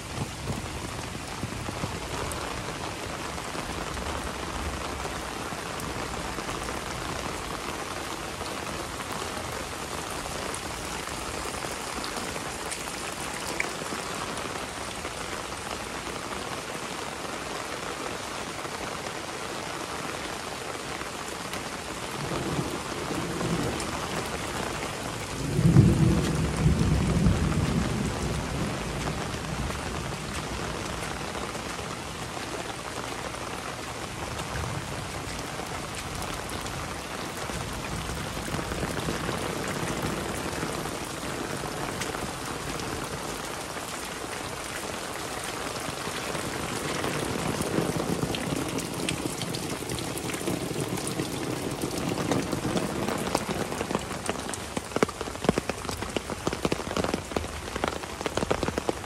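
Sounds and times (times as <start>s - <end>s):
heavy rain: 0.0s - 59.0s
thunder rumbling: 22.2s - 31.3s.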